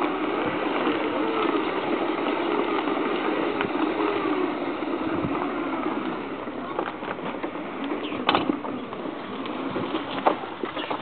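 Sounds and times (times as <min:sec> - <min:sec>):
electric motor whining: 0:00.0 - 0:06.9.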